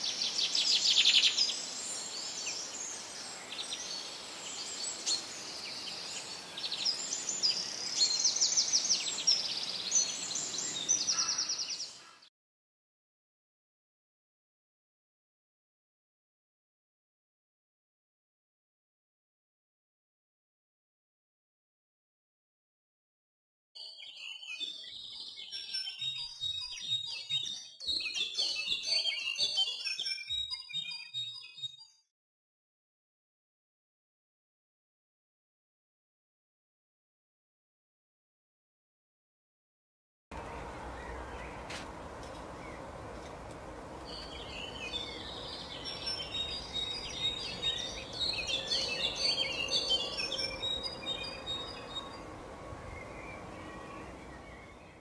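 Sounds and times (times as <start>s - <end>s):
small birds chirping and twittering: 0.0s - 12.3s, 23.8s - 32.0s, 40.4s - 55.0s
goldfinches twittering: 44.0s - 52.2s.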